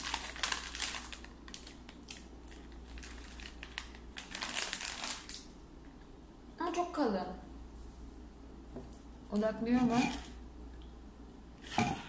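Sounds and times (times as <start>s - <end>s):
plastic snack bag crinkling: 0.0s - 5.5s.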